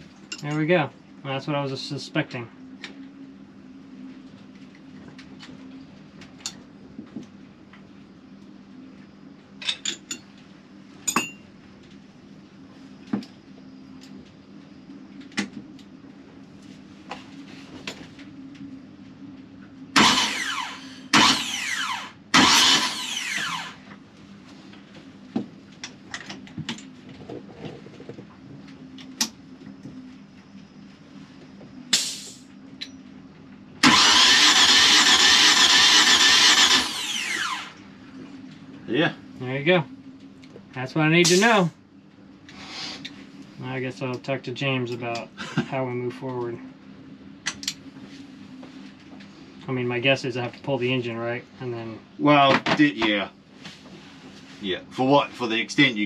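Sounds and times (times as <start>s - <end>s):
engine starter motor cranking: 20.0s - 23.8s, 33.8s - 37.8s.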